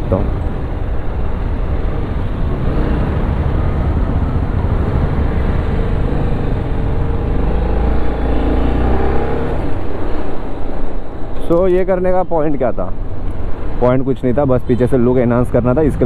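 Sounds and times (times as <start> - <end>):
motorcycle engine accelerating: 2.5 - 9.9.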